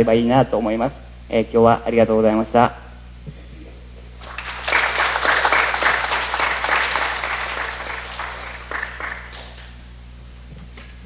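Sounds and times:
audience applauding: 4.2s - 9.9s.

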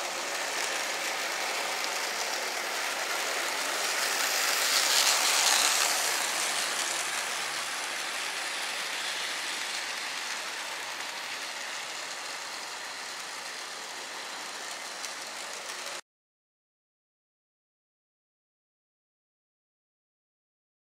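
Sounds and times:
model train running on track: 0.0s - 16.0s.

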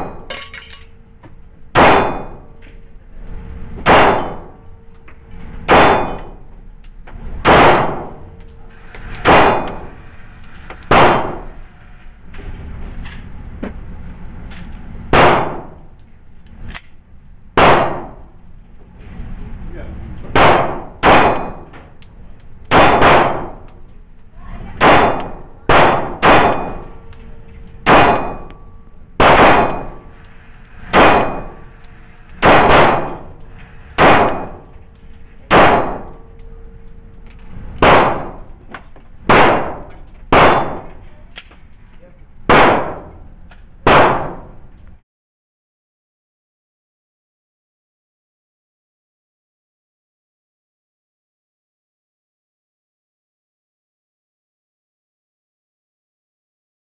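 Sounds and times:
pistol shots echoing indoors: 1.8s - 2.5s, 3.8s - 4.5s, 5.7s - 6.3s, 7.4s - 8.3s, 9.2s - 9.9s, 10.9s - 11.6s, 20.4s - 21.7s, 22.7s - 23.5s, 24.8s - 26.9s, 27.8s - 28.6s, 29.2s - 30.0s, 30.9s - 31.6s, 32.3s - 33.4s, 34.0s - 34.7s, 35.5s - 36.4s, 37.8s - 38.5s, 39.3s - 40.9s, 42.5s - 43.2s, 43.8s - 44.5s.

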